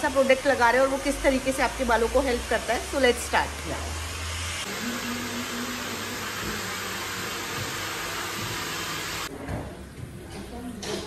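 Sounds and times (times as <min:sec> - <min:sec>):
hair dryer blowing: 0:00.0 - 0:09.3.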